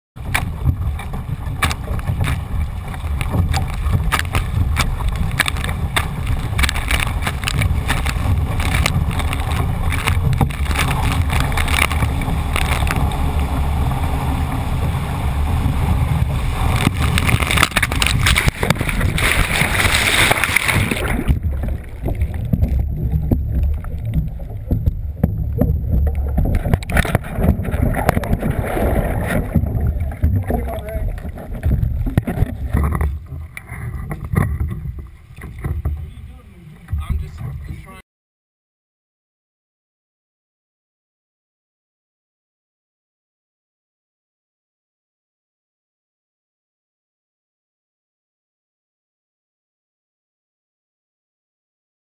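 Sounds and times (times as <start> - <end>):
muffled underwater sound: 0.2 - 38.0
water splashing around canoe: 0.2 - 38.0
wind rumble on microphone: 0.2 - 38.0.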